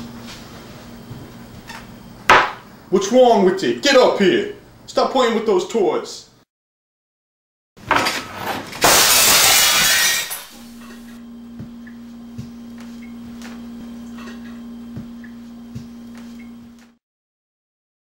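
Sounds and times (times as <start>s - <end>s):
glass shattering: 8.8s - 11.1s
steady low hum: 10.2s - 17.0s.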